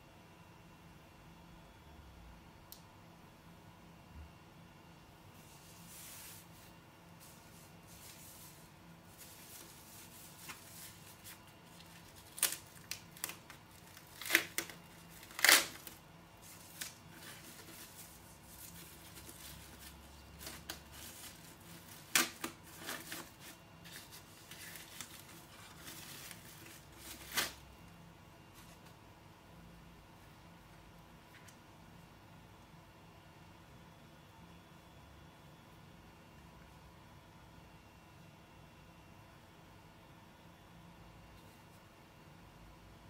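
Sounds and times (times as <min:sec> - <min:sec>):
plastic wrapping crinkling: 0:05.5 - 0:27.6.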